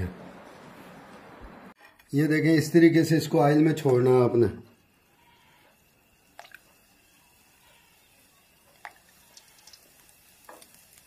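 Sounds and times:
dough balls sizzling in hot oil: 0:03.2 - 0:11.0.

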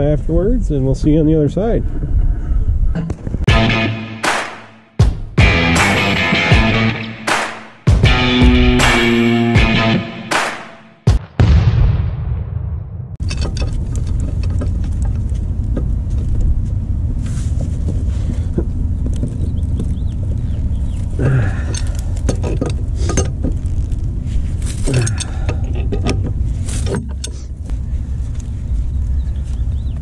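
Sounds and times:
low rumble: 0:11.2 - 0:26.8.

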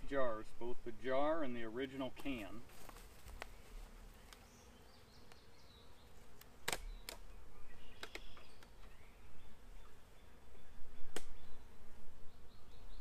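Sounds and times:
bees buzzing: 0:00.1 - 0:13.0
wooden hive parts clicking: 0:06.4 - 0:07.3, 0:08.0 - 0:09.0.

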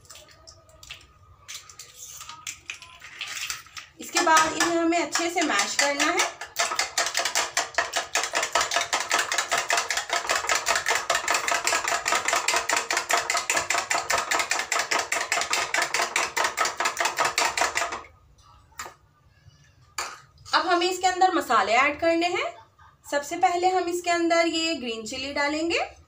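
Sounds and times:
spoon beating eggs in bowl: 0:00.0 - 0:18.1.

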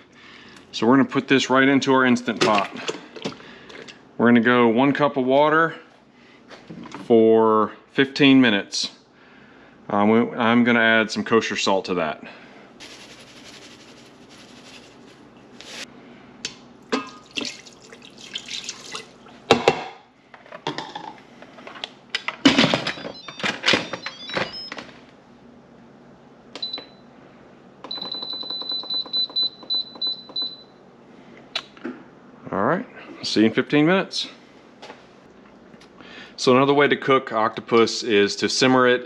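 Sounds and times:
salt shaken into steel pot: 0:12.8 - 0:15.8
control panel beeps: 0:22.9 - 0:24.8, 0:27.9 - 0:30.7.

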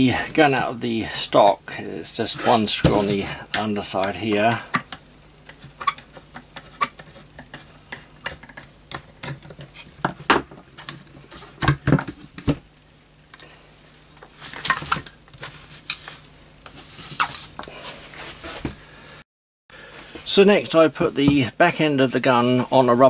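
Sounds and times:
tools picked up and set down: 0:14.6 - 0:16.2.

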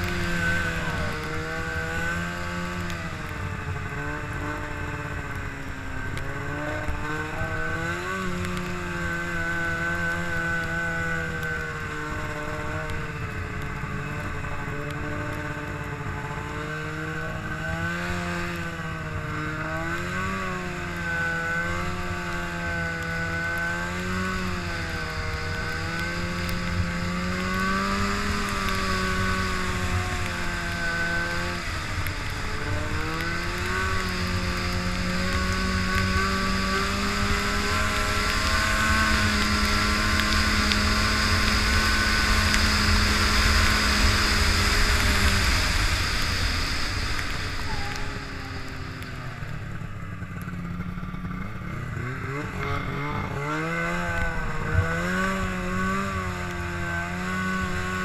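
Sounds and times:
snowmobile engine revving: 0:00.0 - 0:58.0.

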